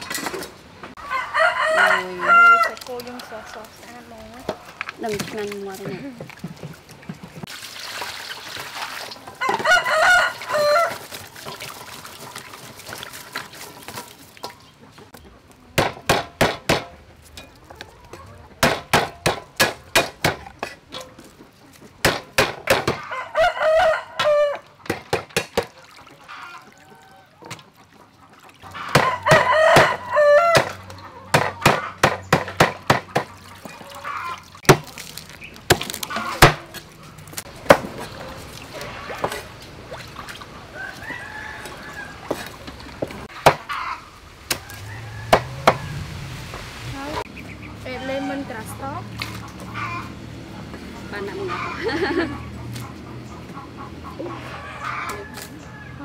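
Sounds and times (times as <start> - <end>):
rooster crowing: 1.0 - 3.6, 9.4 - 11.0, 23.0 - 24.7, 28.8 - 30.8, 40.7 - 42.4, 43.7 - 46.1, 54.4 - 56.0
cleaver chopping on wooden block: 15.8 - 16.9, 18.6 - 20.4, 22.0 - 23.0, 30.6 - 33.3.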